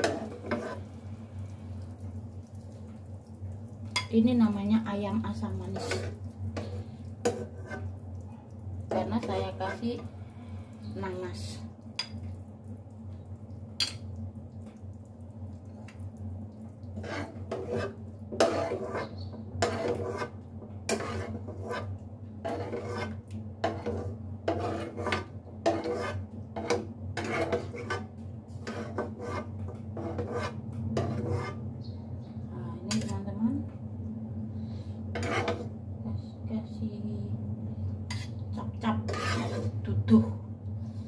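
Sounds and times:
metal spoon scraping a wok: 0.0s - 0.9s, 5.7s - 7.9s, 17.0s - 31.6s, 35.1s - 35.7s, 38.1s - 39.8s.

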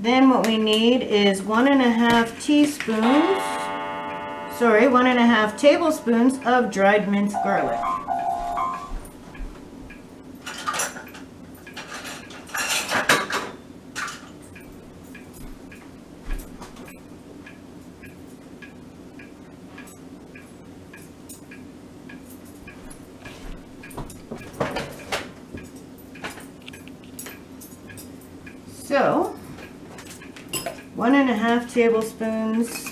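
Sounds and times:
steady low hum: 2.9s - 10.4s
dishes and utensils clattering: 11.8s - 14.3s, 32.7s - 32.9s.

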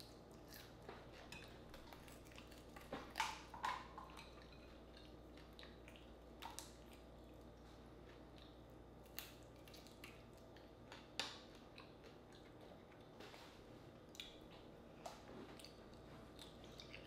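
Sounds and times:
low room hum: 0.0s - 17.0s
chewing mouth smacks: 14.1s - 17.0s.

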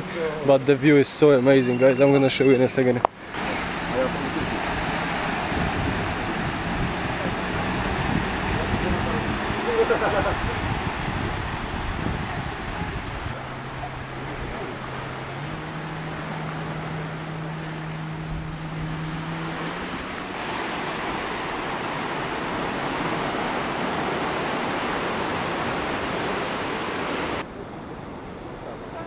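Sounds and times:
surf washing onto beach: 0.0s - 27.5s.

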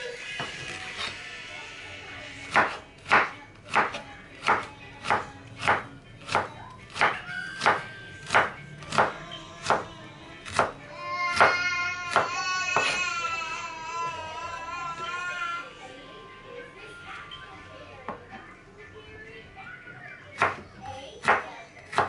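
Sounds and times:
knife chopping on wooden board: 2.5s - 9.9s, 10.5s - 13.0s, 21.2s - 22.0s.

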